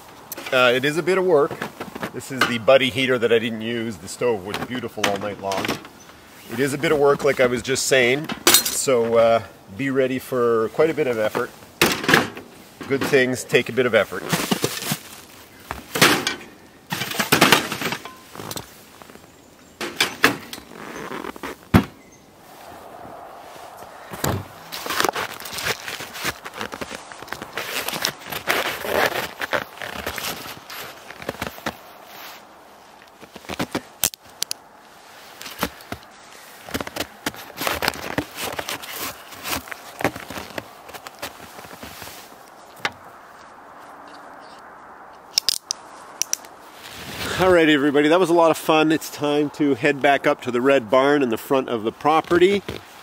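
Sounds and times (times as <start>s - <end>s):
gear rustling and scraping: 10.1s - 21.8s, 23.4s - 47.7s
snowshoes crunching on snow: 12.6s - 15.9s, 20.6s - 21.7s, 22.4s - 34.0s, 34.9s - 43.6s
snowshoe bindings clicking: 24.0s - 31.9s, 33.0s - 34.6s, 35.3s - 42.1s.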